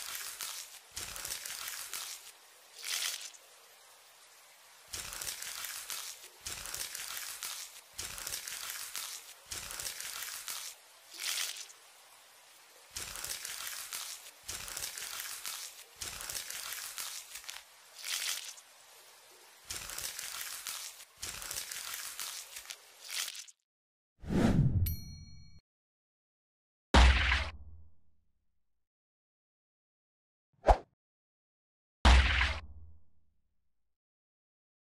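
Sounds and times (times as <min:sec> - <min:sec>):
knife scraping through worms: 0:00.0 - 0:03.4, 0:05.0 - 0:11.7, 0:13.0 - 0:18.6, 0:19.7 - 0:23.6.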